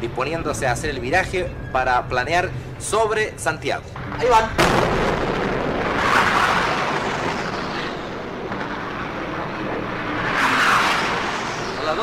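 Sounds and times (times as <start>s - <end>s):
jet passing overhead: 4.1s - 12.0s.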